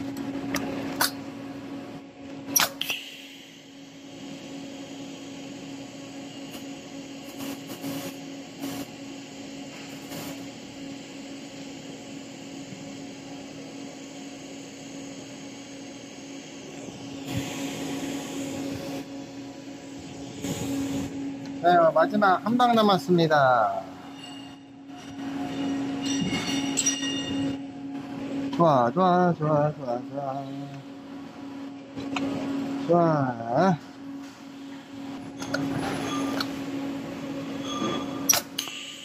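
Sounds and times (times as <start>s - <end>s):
welding arc hiss: 2.5s - 10.8s, 16.5s - 21.2s.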